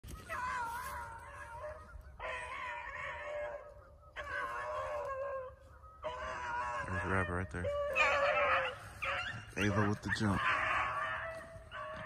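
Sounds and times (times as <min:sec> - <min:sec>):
hounds baying: 0:00.0 - 0:12.0.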